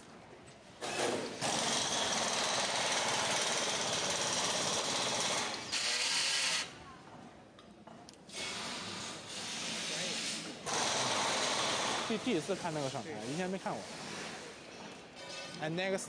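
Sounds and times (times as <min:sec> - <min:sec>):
power tool hammering: 0:00.8 - 0:06.6, 0:10.6 - 0:12.2.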